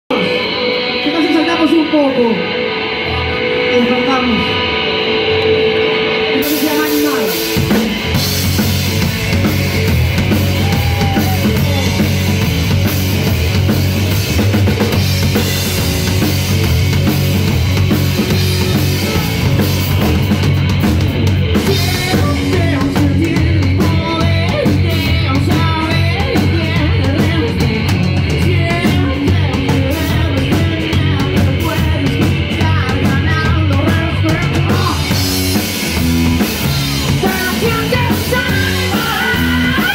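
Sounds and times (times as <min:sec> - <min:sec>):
rock band playing live: 0:00.1 - 0:39.9
man singing into microphone: 0:21.7 - 0:27.8, 0:28.4 - 0:35.1, 0:37.2 - 0:39.9.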